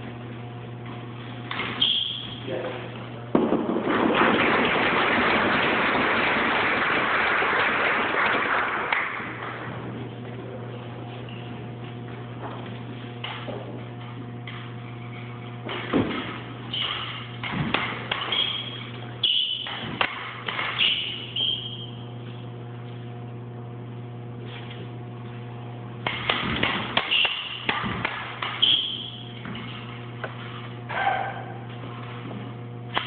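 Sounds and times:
steady low hum: 0:00.0 - 0:33.0
fencing blades clashing: 0:01.5 - 0:02.4, 0:14.4 - 0:21.9, 0:26.0 - 0:32.2.

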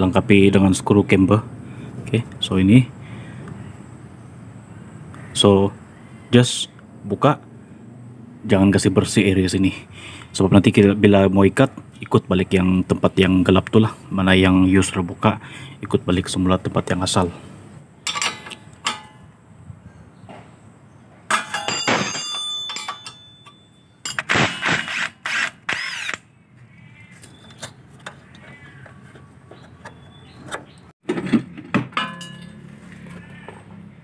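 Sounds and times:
sharp metal knocks: 0:18.0 - 0:19.3, 0:21.3 - 0:25.2, 0:28.0 - 0:32.8
impact wrench whining: 0:21.3 - 0:26.3.

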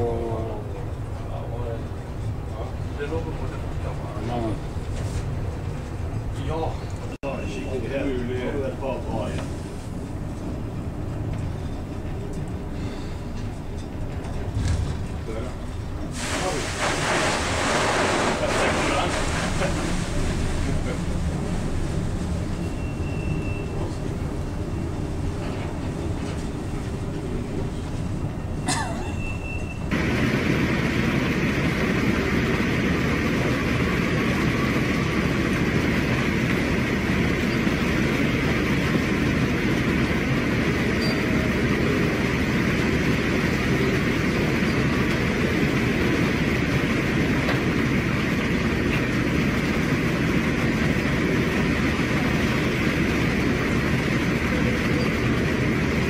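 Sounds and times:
heavy seas rumbling: 0:12.0 - 0:56.0.

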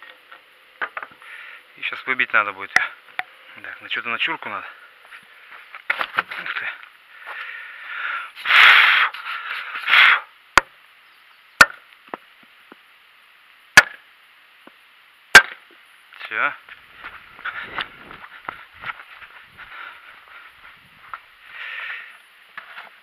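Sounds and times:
rustling and scraping of metal part: 0:05.0 - 0:07.5, 0:08.4 - 0:10.3, 0:16.7 - 0:23.0.

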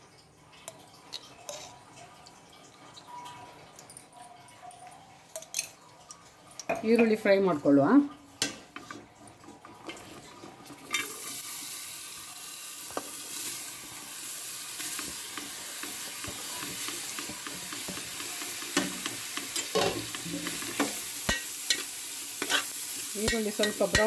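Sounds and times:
onions sizzling in hot fat: 0:10.0 - 0:24.0.

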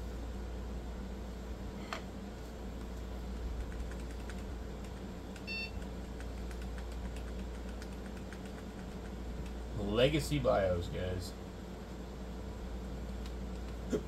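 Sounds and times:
computer fans humming: 0:00.0 - 0:14.0
keyboard key clicks: 0:03.6 - 0:09.6.

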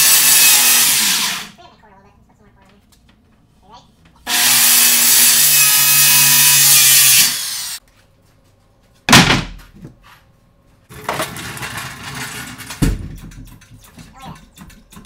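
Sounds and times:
circular saw cutting wood: 0:00.0 - 0:01.6, 0:04.3 - 0:07.8
loud thump: 0:09.1 - 0:09.6
pallet jack rattling on concrete: 0:10.9 - 0:15.0.

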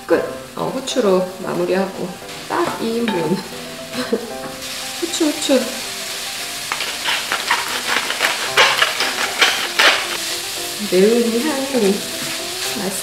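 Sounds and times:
stir-fry sizzling: 0:00.0 - 0:13.0
pepper mill grinding: 0:06.0 - 0:10.6.

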